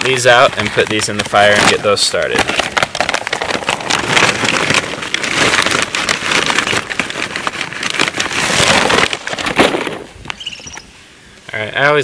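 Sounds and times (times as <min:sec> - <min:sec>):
charcoal briquettes clattering: 0:00.0 - 0:10.8.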